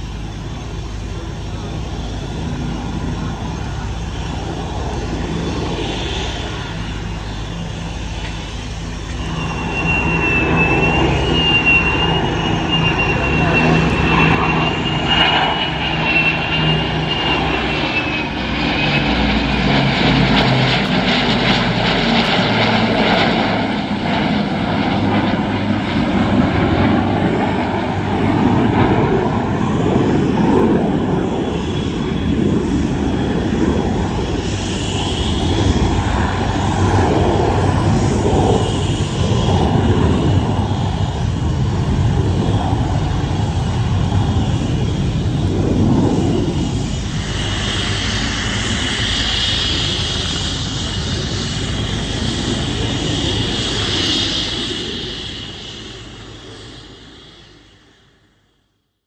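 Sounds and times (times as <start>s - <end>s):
thin high whine: 0.0s - 57.4s
piston engines droning: 0.0s - 57.6s
loud jet roar: 0.0s - 58.0s.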